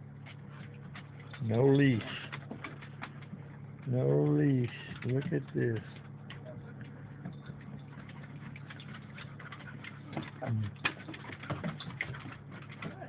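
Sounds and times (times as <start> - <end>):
dog's claws on wooden deck: 0.0 - 13.0
steady low hum: 0.0 - 13.0
low voice: 10.4 - 10.8.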